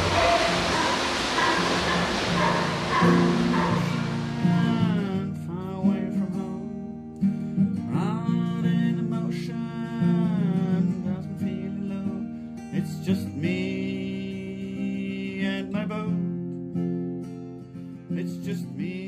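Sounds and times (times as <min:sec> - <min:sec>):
surf washing: 0:00.0 - 0:05.2
acoustic guitar music: 0:00.0 - 0:19.0.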